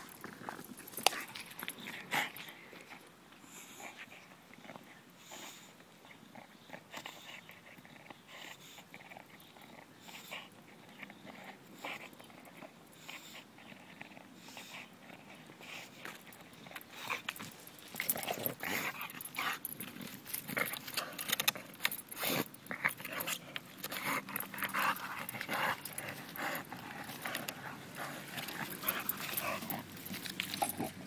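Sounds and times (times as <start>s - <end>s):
dog breathing: 1.9s - 31.0s
dog chewing wood: 6.3s - 31.0s.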